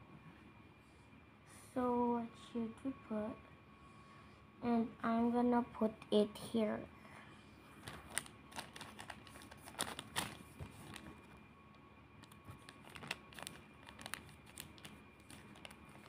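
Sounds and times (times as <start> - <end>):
plastic packaging crinkling: 7.8 - 11.4, 12.2 - 16.0.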